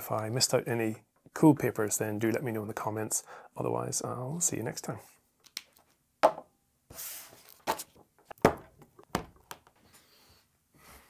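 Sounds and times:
knocks on wooden desk: 6.2s - 6.5s.

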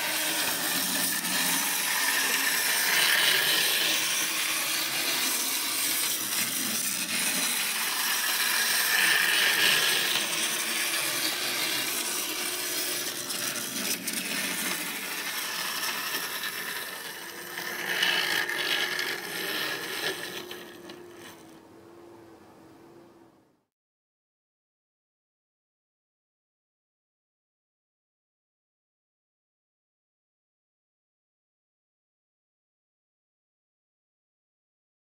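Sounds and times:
clockwork toy train whirring: 0.0s - 21.6s
toy train wheels rattling: 0.0s - 21.6s.

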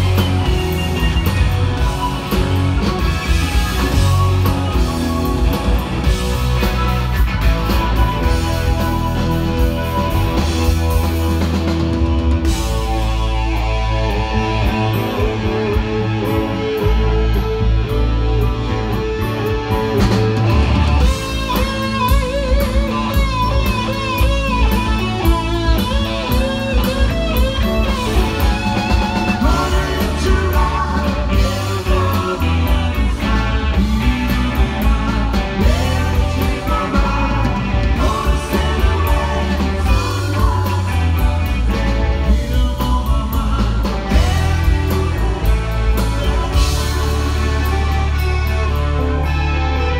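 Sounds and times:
electric guitar: 0.0s - 49.9s
live rock band playing: 0.0s - 49.9s.

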